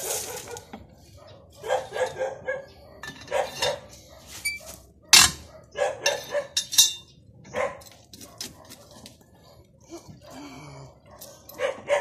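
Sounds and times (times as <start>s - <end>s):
dog barking: 0.0s - 6.6s, 7.5s - 9.6s, 10.2s - 12.0s
sharp metal clank: 5.2s - 5.5s, 6.1s - 7.1s
metal hand tools clinking: 6.0s - 7.1s.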